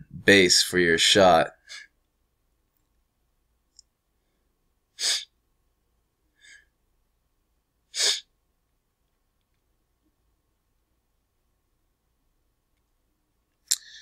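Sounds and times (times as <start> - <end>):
person's sharp breaths: 4.2 - 5.4, 6.3 - 6.8, 7.9 - 8.3, 13.7 - 14.0.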